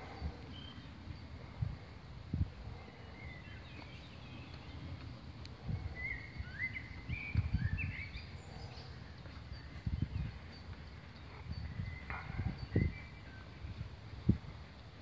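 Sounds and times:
birds singing: 0.0 - 14.5
low outdoor rumble: 0.0 - 15.0.

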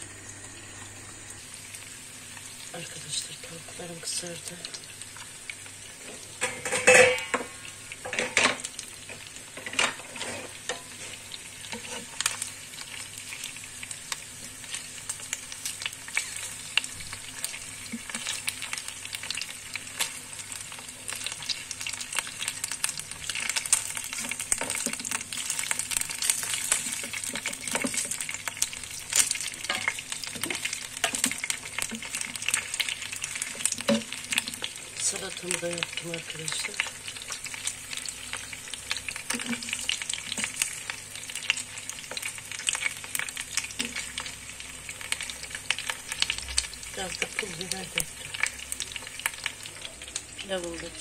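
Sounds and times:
chicken sizzling in hot oil: 0.0 - 51.0
wooden spatula scraping pan: 9.6 - 12.2.

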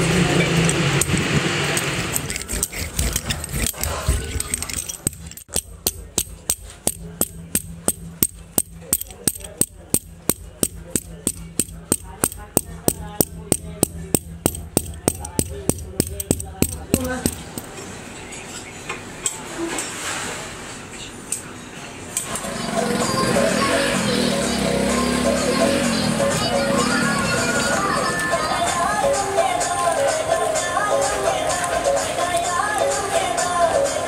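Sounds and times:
loud rough noise: 0.0 - 5.4, 22.3 - 28.2
hand tool tapping rubber: 2.3 - 17.7.

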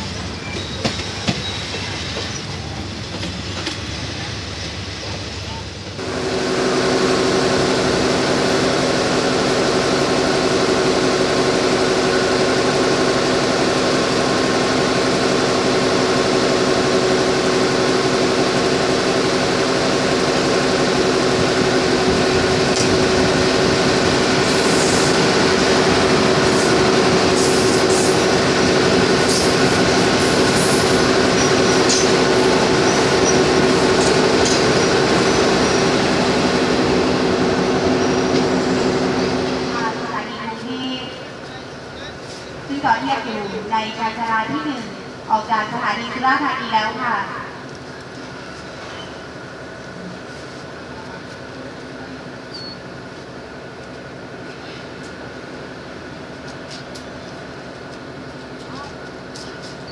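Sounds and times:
high-pitched train squeals: 0.0 - 2.8, 48.8 - 49.2, 52.5 - 52.9
diesel railcar engines humming: 0.0 - 59.9.

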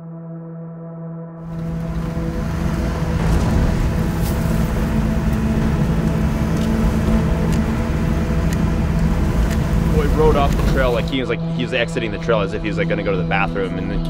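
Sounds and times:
car engine and road rumble: 1.4 - 13.3
knocks and rattles from bumps: 1.5 - 11.0.

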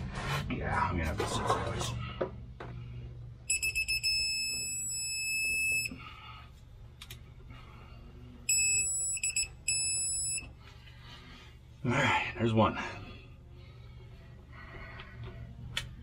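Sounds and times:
quick high beeps: 3.5 - 5.9
long beep: 3.5 - 6.0, 8.5 - 10.5.

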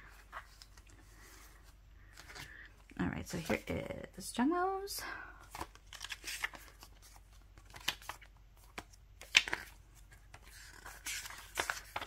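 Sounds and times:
booklet pages flipping: 0.0 - 2.7, 5.5 - 12.0.

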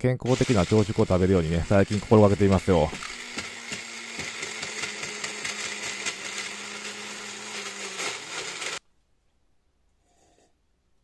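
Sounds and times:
blender motor whirring: 0.3 - 8.8.

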